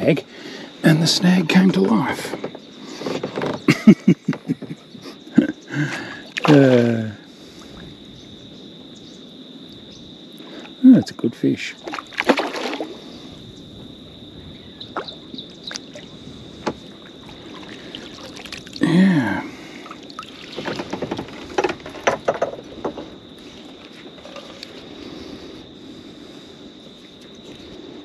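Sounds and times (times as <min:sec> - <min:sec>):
fish splashing at water surface: 0:11.8 - 0:13.2, 0:17.2 - 0:18.8, 0:19.7 - 0:21.5
water sloshing and dripping: 0:11.8 - 0:13.2, 0:14.9 - 0:18.8, 0:19.6 - 0:24.9
short grunt: 0:18.8 - 0:19.7
clicks and knocks of tackle: 0:20.6 - 0:23.1.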